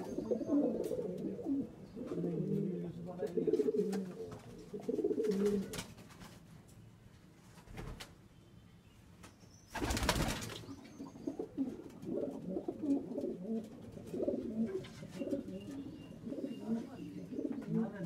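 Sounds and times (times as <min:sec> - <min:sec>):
pigeons cooing: 0:00.0 - 0:05.8, 0:09.8 - 0:18.0.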